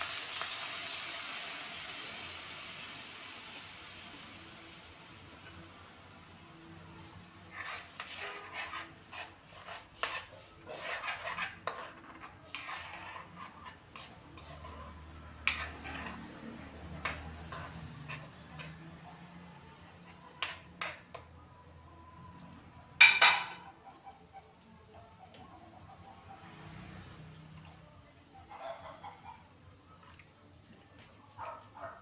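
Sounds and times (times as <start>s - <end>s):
metal spoon scraping a wok: 7.4s - 19.0s, 20.1s - 21.2s.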